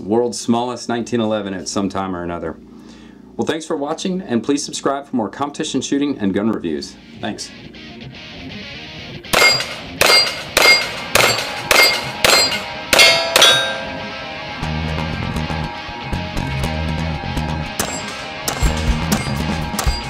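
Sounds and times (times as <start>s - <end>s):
background guitar music: 6.5s - 20.0s
pistol shots: 9.3s - 13.7s, 17.8s - 20.0s
sharp cracks: 9.3s - 13.7s, 17.8s - 20.0s
steel plate clanging: 9.4s - 14.2s, 17.8s - 20.0s.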